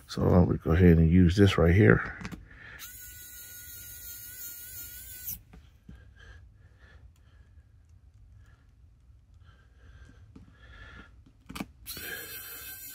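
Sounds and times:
electric screwdriver whining: 0:02.8 - 0:05.5, 0:11.9 - 0:12.9.

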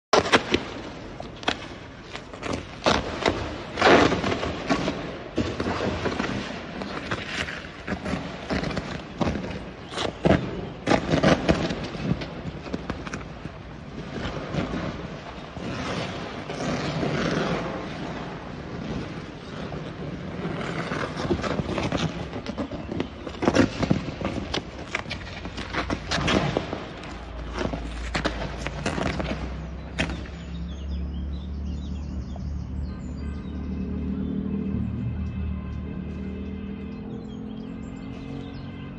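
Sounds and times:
sharp bangs and cracks: 0:00.1 - 0:19.5.

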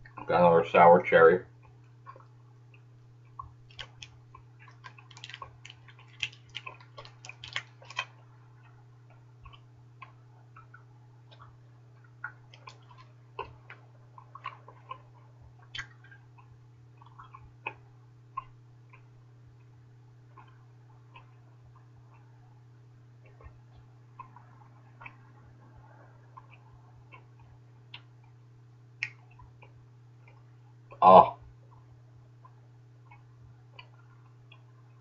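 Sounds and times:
steady low hum: 0:00.0 - 0:35.0
mouth chewing bubble gum: 0:01.6 - 0:19.7, 0:20.3 - 0:22.3, 0:23.2 - 0:25.3, 0:31.7 - 0:35.0.

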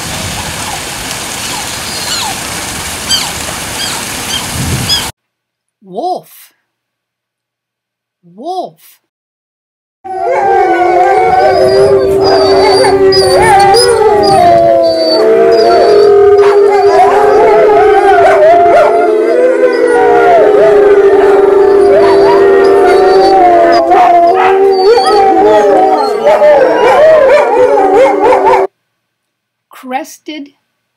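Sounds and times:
wolves howling together: 0:10.1 - 0:28.7.

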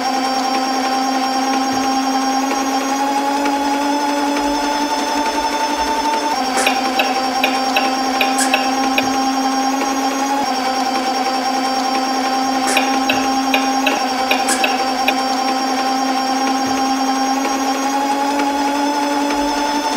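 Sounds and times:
quick ticks: 0:06.6 - 0:09.2, 0:12.7 - 0:15.3.

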